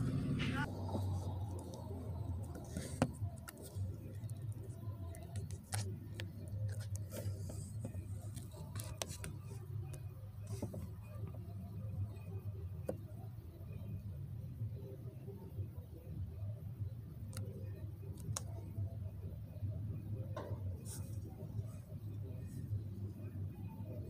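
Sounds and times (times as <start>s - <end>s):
low vehicle rumble: 0.0s - 4.9s
faint clicks and taps: 0.6s - 11.4s, 17.3s - 18.8s.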